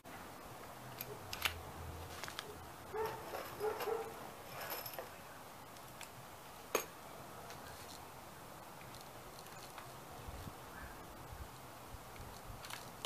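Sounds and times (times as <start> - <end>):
distant dog barking: 2.4 - 4.2.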